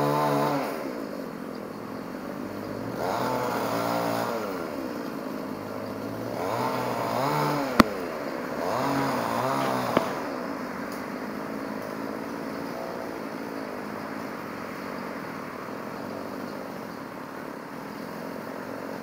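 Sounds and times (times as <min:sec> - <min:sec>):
chainsaw revving: 0:00.0 - 0:01.0, 0:02.8 - 0:10.6.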